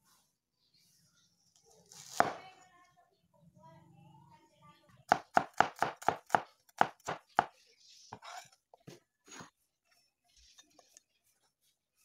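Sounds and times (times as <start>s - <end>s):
blade scraping cutting board: 8.1s - 8.6s.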